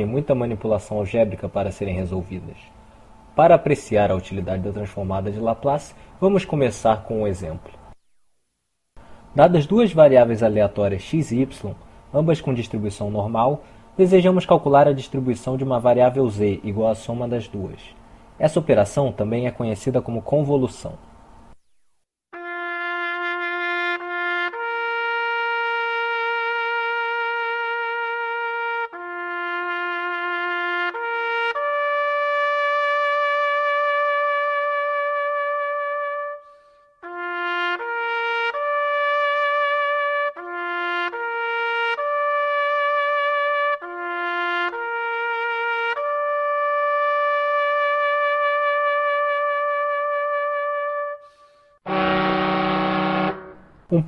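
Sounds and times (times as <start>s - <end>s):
solo trumpet melody: 22.3s - 53.8s.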